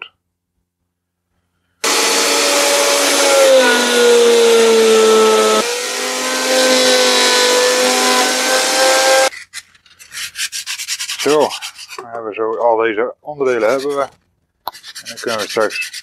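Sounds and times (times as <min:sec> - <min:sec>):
woodworking machine motor running: 0:01.8 - 0:09.3.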